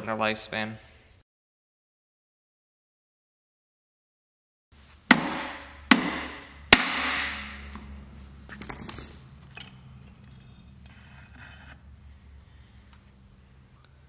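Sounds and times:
sharp metal knocks: 5.1 - 7.6.

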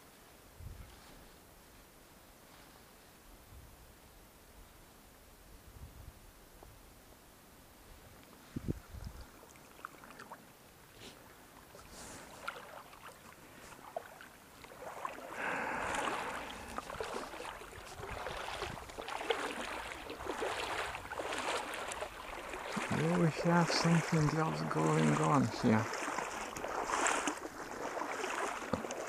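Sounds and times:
water splashing around wading legs: 8.7 - 29.0.

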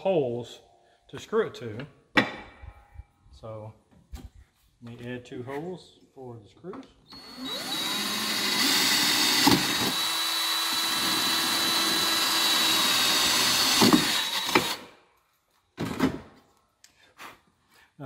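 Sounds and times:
cordless drill whining: 7.1 - 14.9.

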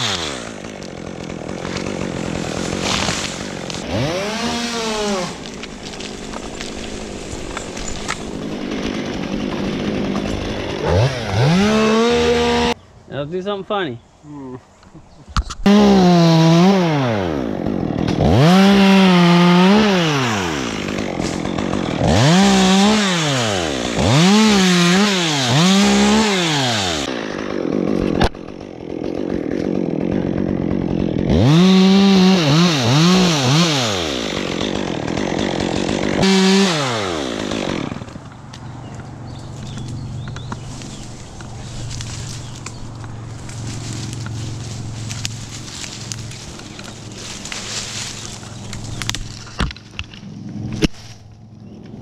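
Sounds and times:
chainsaw idling: 0.0 - 12.8, 15.6 - 49.5
chainsaw revving: 0.0 - 12.8, 15.6 - 38.4.

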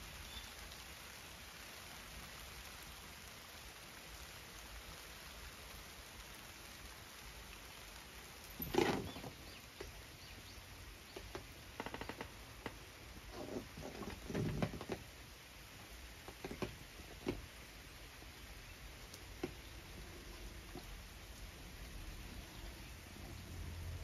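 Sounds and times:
rustling: 8.5 - 10.0, 11.1 - 15.2.

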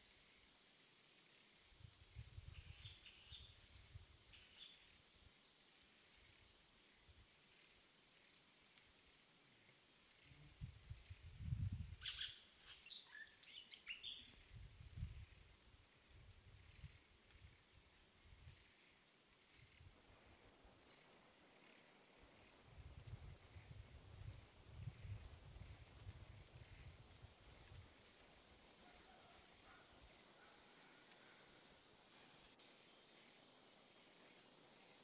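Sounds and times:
wind rumble on microphone: 1.8 - 4.2, 10.4 - 12.1, 14.4 - 17.6, 22.7 - 27.9.

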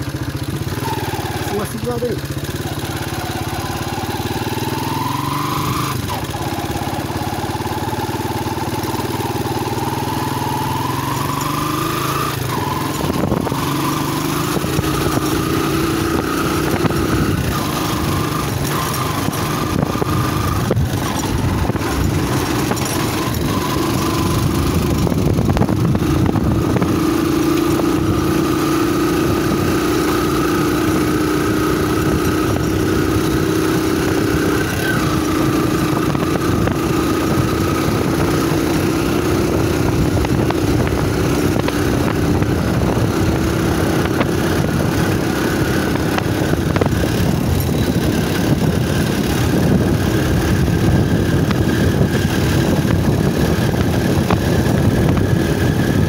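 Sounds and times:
small motorcycle engine running: 0.0 - 56.0
knocks and rattles: 18.6 - 25.7.

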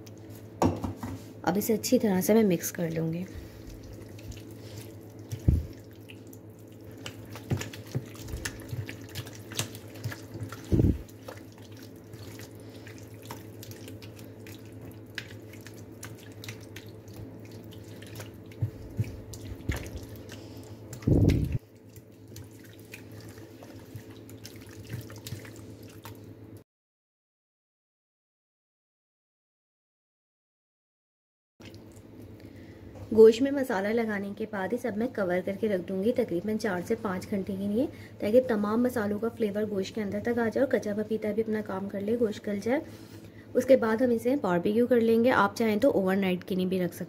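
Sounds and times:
steady low hum: 0.0 - 26.6
hand squelching meat in marinade: 2.8 - 26.3.

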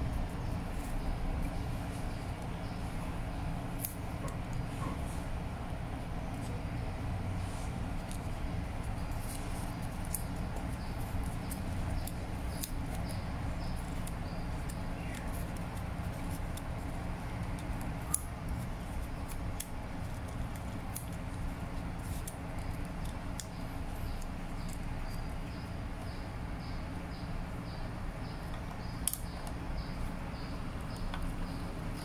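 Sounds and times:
fingers handling label paper: 7.4 - 25.6.

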